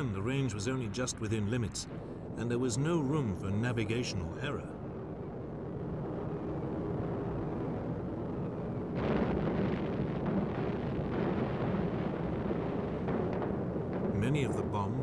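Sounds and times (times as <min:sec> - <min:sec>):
bombs exploding: 0:08.8 - 0:15.0.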